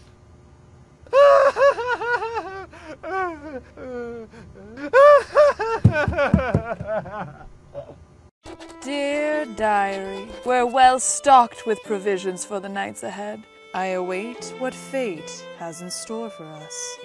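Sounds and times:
cartoon character sobbing and wailing: 1.1 - 5.6.

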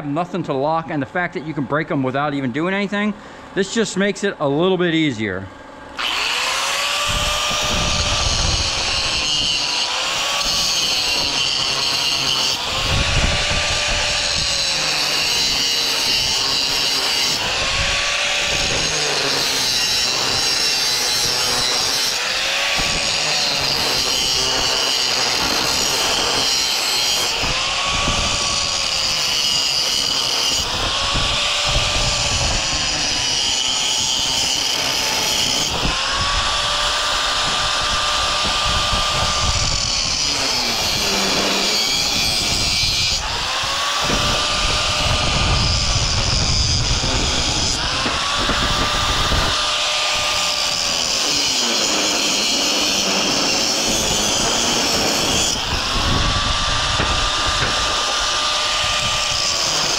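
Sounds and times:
power cutting tool motor droning: 5.4 - 59.9.

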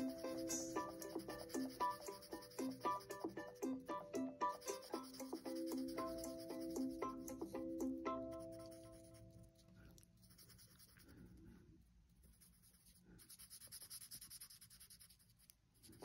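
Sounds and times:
marker scratching on paper: 0.0 - 7.6, 8.3 - 9.3, 10.2 - 11.2, 12.3 - 16.0
background music: 0.0 - 9.5.

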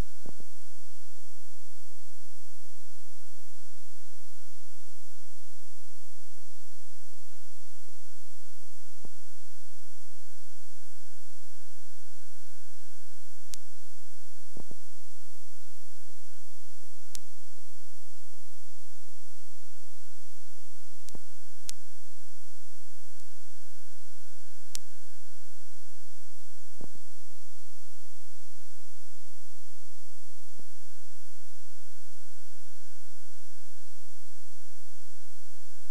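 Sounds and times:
electrical hum: 0.0 - 35.9
high wavering whine: 0.0 - 35.9
faint clicks: 21.0 - 21.8.

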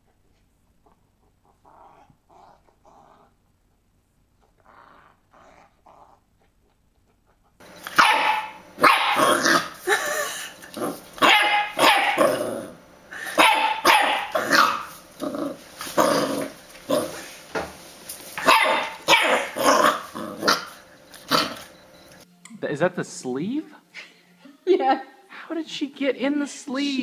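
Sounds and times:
dog barking and growling: 0.8 - 3.8, 4.4 - 17.4, 18.4 - 21.8.

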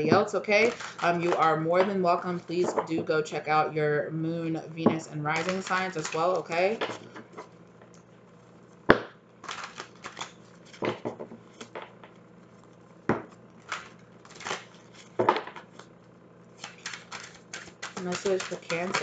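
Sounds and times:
cards being shuffled: 0.0 - 2.9, 5.3 - 7.6, 9.4 - 16.0, 16.6 - 19.0.

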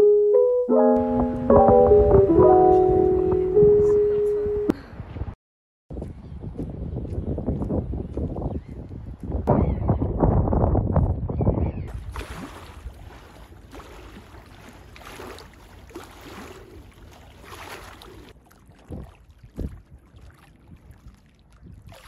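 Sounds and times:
wind rumbling on microphone: 4.8 - 14.4, 18.4 - 22.0
water lapping at riverbank: 11.9 - 22.0.

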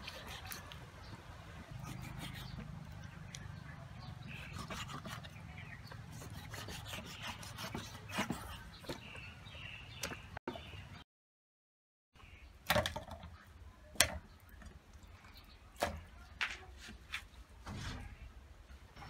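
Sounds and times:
meat rubbing and scraping: 0.0 - 0.8, 1.7 - 3.0, 4.2 - 9.2.

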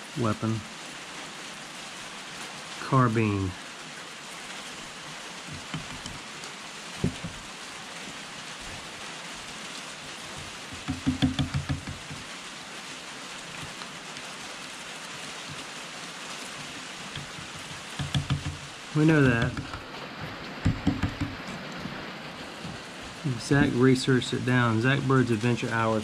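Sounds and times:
steady rain-like hiss: 0.0 - 26.0.

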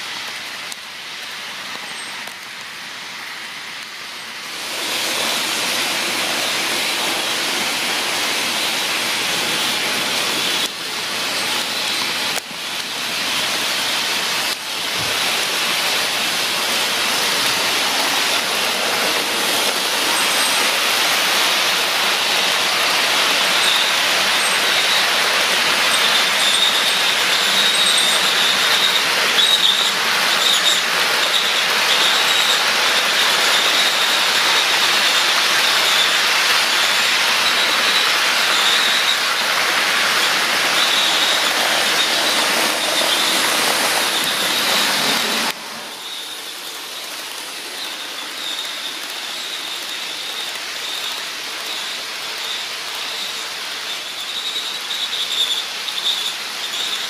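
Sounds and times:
model train wheels on rail: 0.0 - 57.0
thin high whine: 32.0 - 57.0.

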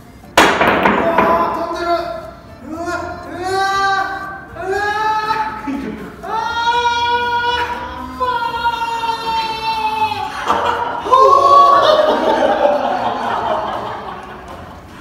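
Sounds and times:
people laughing: 5.6 - 6.5, 8.9 - 15.0.

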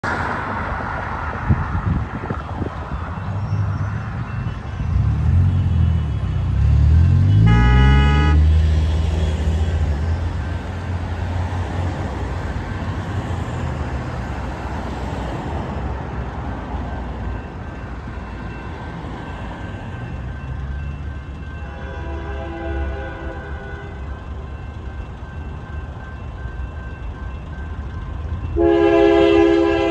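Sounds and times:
horn blast: 7.2 - 8.6, 28.6 - 29.9.

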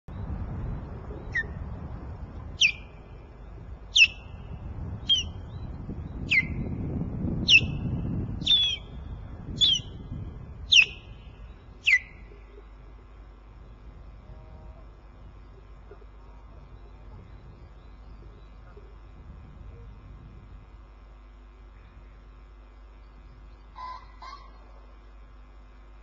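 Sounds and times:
osprey whistling calls: 1.2 - 1.6, 2.6 - 3.1, 3.9 - 6.8, 7.4 - 10.1, 10.7 - 12.5.

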